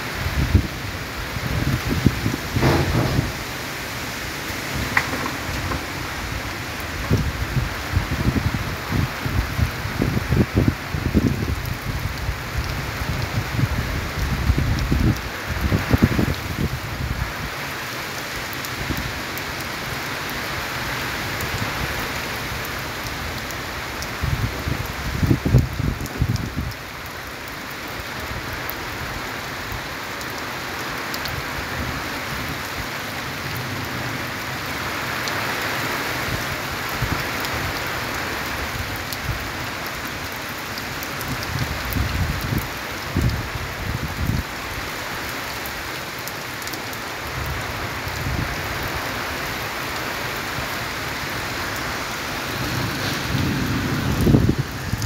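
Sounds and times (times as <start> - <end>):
heavy rain: 0.0 - 55.0
low rumbling of thunder: 0.3 - 16.8, 52.5 - 55.0.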